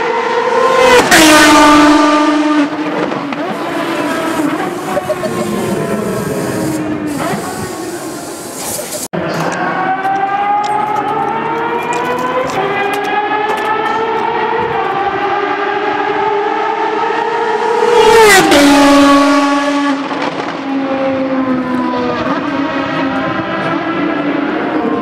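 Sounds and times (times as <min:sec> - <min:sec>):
sports car engine accelerating: 0:00.0 - 0:08.4.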